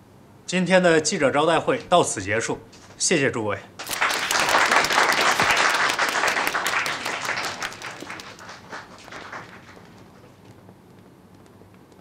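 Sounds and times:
crowd applauding: 3.8s - 10.4s.

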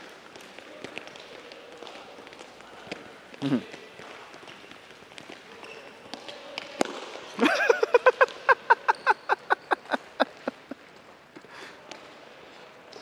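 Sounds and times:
child laughing: 7.4s - 10.8s.

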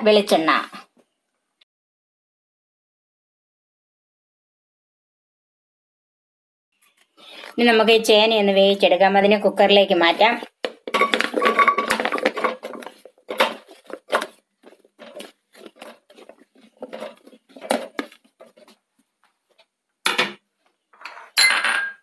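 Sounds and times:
vegetable chunks clattering into pot: 10.6s - 18.6s.

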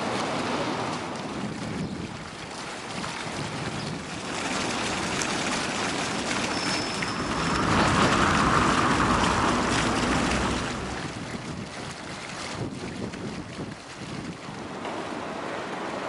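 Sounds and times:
fountain jets splashing: 0.0s - 16.0s.

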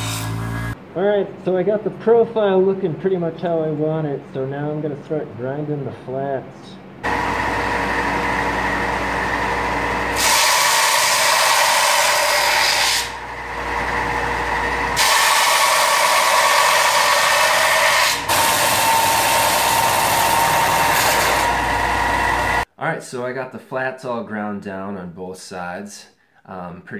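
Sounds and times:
belt grinder humming: 0.0s - 0.8s, 7.0s - 22.6s
steel hissing on grinding belt: 10.2s - 13.1s, 15.0s - 18.2s.

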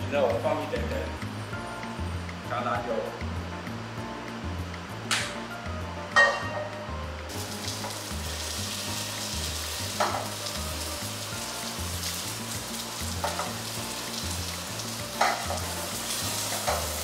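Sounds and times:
meat sizzling in a frying pan: 7.3s - 17.0s
metal tongs clinking on pan: 16.5s - 17.0s.

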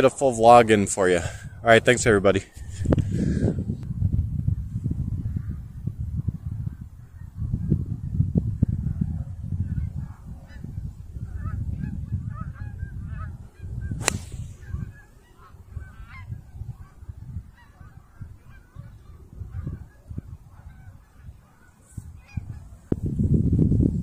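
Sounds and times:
wind rumble on microphone: 0.0s - 24.0s
golf club striking ball: 14.0s - 14.9s.

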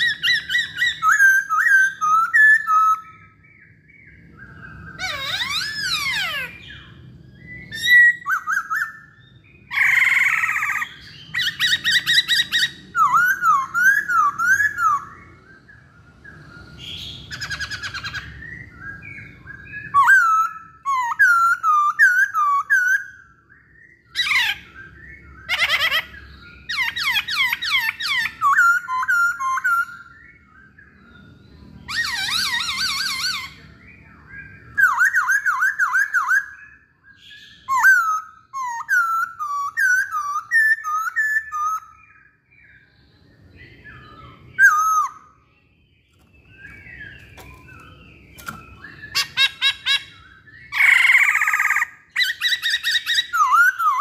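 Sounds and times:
bird singing whistled notes: 0.0s - 54.0s.

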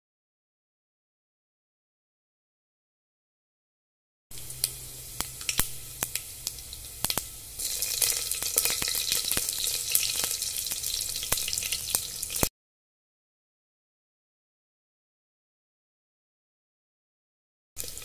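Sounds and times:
spices sizzling in hot oil: 4.3s - 12.5s, 17.8s - 18.0s.

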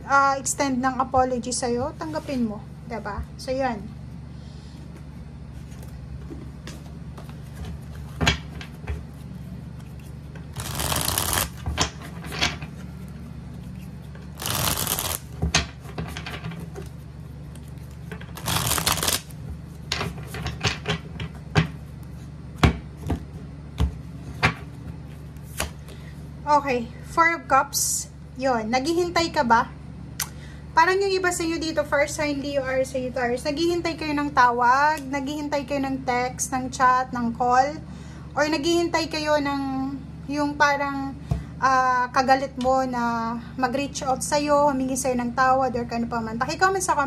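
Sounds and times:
cards being shuffled: 9.0s - 12.0s, 13.5s - 15.4s, 16.8s - 19.8s
cards tapping and clicking: 10.6s - 11.9s, 14.4s - 15.2s, 18.4s - 19.3s.

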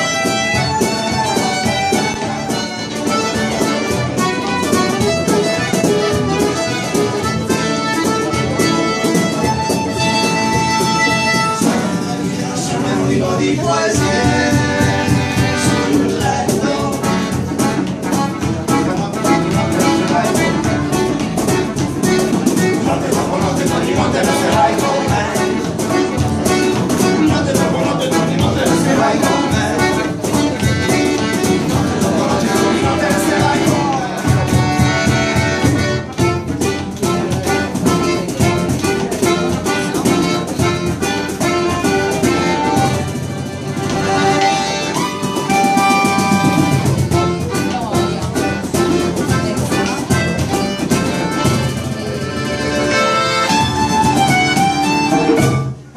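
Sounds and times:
fiddle: 0.0s - 11.9s, 33.9s - 55.9s
held melody notes: 0.0s - 12.6s, 13.7s - 55.9s
accordion: 0.0s - 55.9s
hand drum beat: 0.0s - 55.9s
strummed acoustic guitars: 0.0s - 55.9s.

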